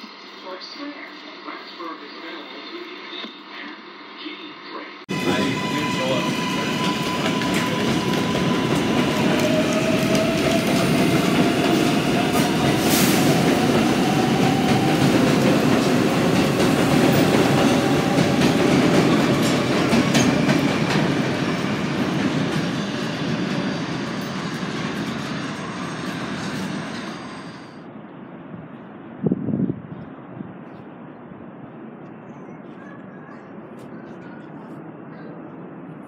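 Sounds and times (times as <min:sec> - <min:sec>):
wheels rumbling on rail: 0:05.1 - 0:36.0.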